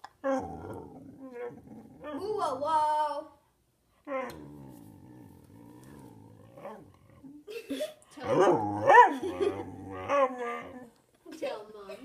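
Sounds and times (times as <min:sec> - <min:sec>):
dog grumbling: 0:00.2 - 0:02.7, 0:04.1 - 0:07.5, 0:08.2 - 0:10.9.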